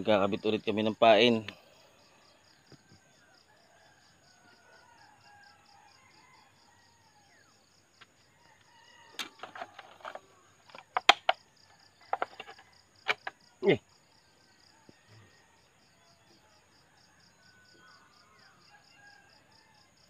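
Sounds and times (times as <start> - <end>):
insect chirping: 0.0 - 20.0
clicks and knocks in dry soil: 9.1 - 11.4, 12.0 - 13.4.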